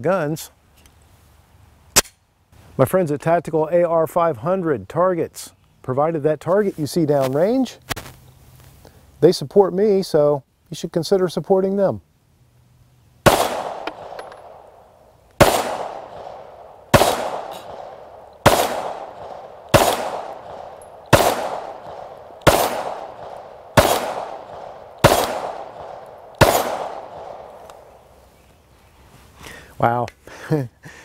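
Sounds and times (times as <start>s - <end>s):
pistol shots with echo: 13.2s - 14.7s, 15.4s - 27.9s.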